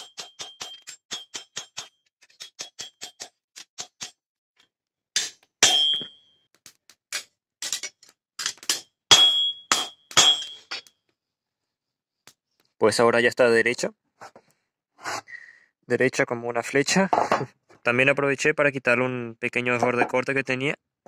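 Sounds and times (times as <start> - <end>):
hammer on steel on anvil: 5.2 - 6.2, 8.7 - 10.8.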